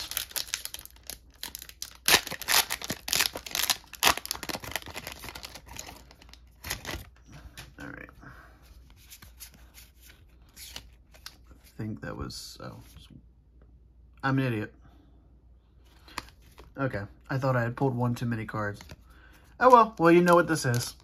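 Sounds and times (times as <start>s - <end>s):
foil wrapper ripping and crackling: 0.0s - 7.0s
cards rustling: 0.0s - 7.7s, 8.7s - 11.8s, 18.6s - 21.0s.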